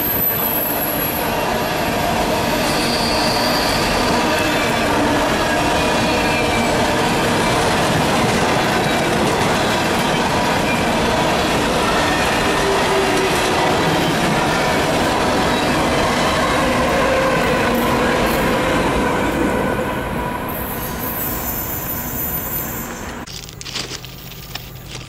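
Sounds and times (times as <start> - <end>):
wheel squeal: 2.5 - 4.6, 20.5 - 23.3.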